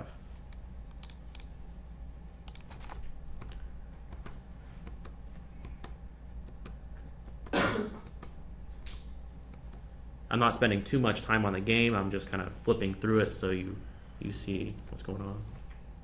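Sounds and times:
low steady hum: 0:00.0 - 0:16.0
computer keys clicking: 0:00.4 - 0:01.5, 0:02.4 - 0:09.9.

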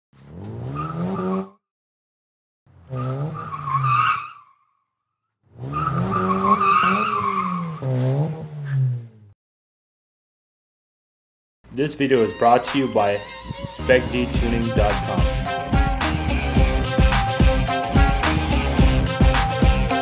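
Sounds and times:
car engine revving: 0:00.2 - 0:01.5, 0:02.7 - 0:04.1, 0:05.5 - 0:09.3, 0:14.0 - 0:20.0.

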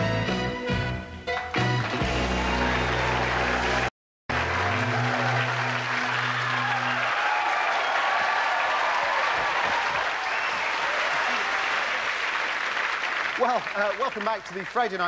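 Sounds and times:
theme music: 0:00.0 - 0:07.7
studio audience applauding: 0:01.4 - 0:15.0.

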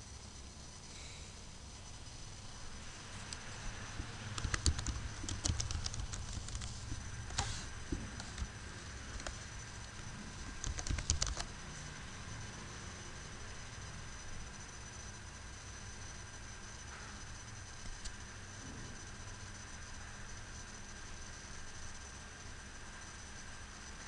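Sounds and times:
steady low hum: 0:00.0 - 0:24.0
computer keyboard typing: 0:04.2 - 0:08.5, 0:09.1 - 0:09.4, 0:10.0 - 0:11.5.

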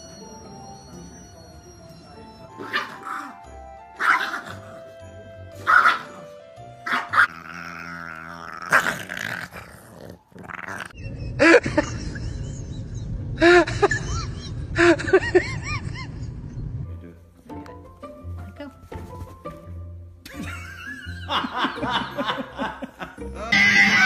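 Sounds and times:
background music: 0:00.0 - 0:24.0
dogs yelping: 0:05.6 - 0:06.2.

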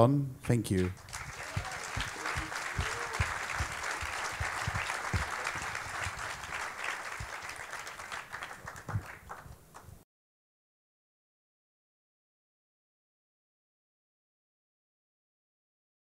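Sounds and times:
audience applauding: 0:00.7 - 0:09.9.

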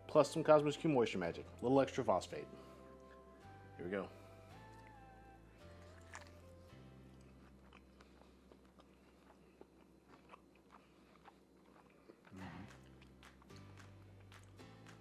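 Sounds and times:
man chewing: 0:05.6 - 0:15.0.

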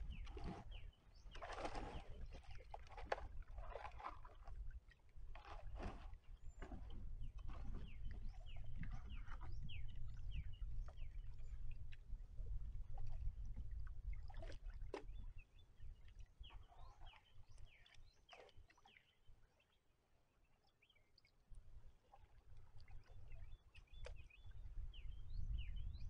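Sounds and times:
kayak scraping muddy bank: 0:00.0 - 0:09.6
splashing paddle strokes: 0:00.1 - 0:08.2.

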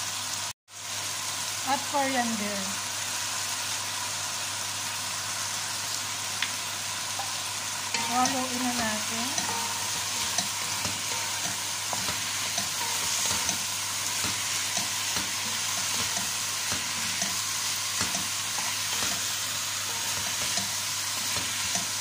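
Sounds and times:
chicken sizzling in oil: 0:00.0 - 0:22.0
spatula scraping and knocking pot: 0:07.2 - 0:22.0.

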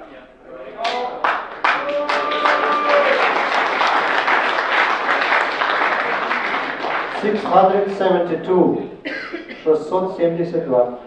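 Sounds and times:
audience clapping: 0:00.8 - 0:08.2.

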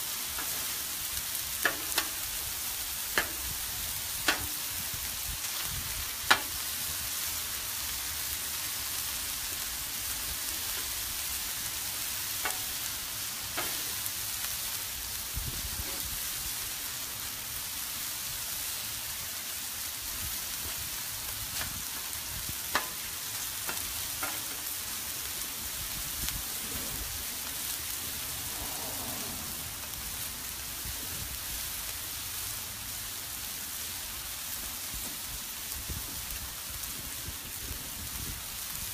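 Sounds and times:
food sizzling on a griddle: 0:00.0 - 0:38.9.

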